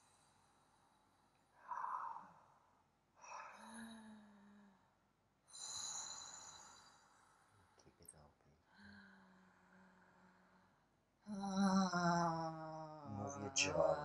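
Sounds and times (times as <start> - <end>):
low voiced tone: 13.1 - 14.0.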